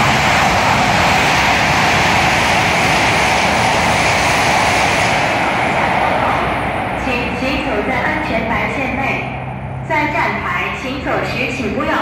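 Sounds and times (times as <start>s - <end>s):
high-speed train passing: 0.0s - 12.0s.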